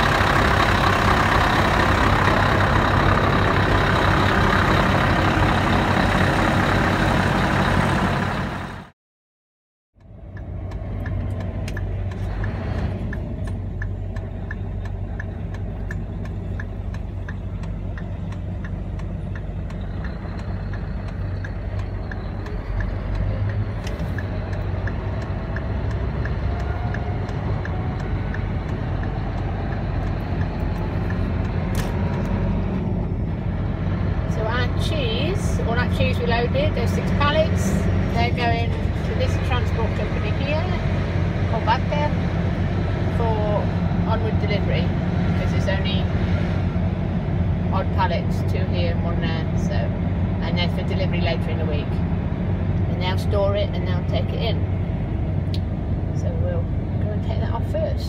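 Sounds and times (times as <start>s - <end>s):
lorry engine hum from inside cab: 0.0s - 8.9s, 10.0s - 58.0s
lorry diesel engine outside: 0.0s - 9.0s, 10.0s - 58.0s
light regular ticking: 10.0s - 33.4s.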